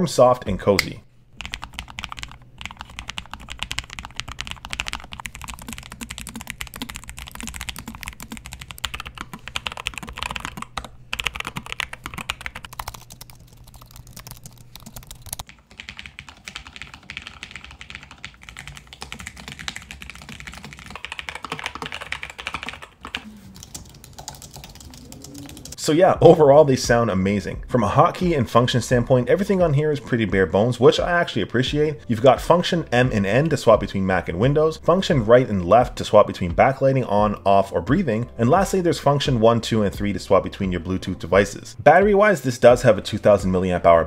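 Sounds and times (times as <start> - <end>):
typing on keyboards: 1.4 - 25.8.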